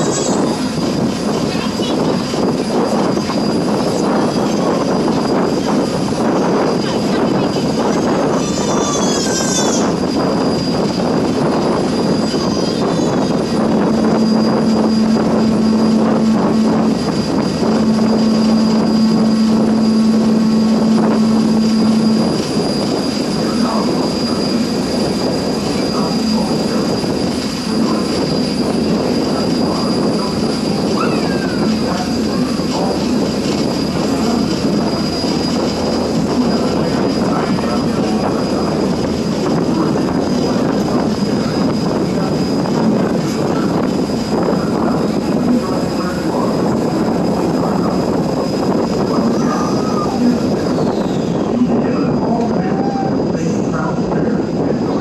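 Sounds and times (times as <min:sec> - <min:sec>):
boat diesel engine running: 0:00.0 - 0:55.0
low steady tone: 0:13.1 - 0:38.6.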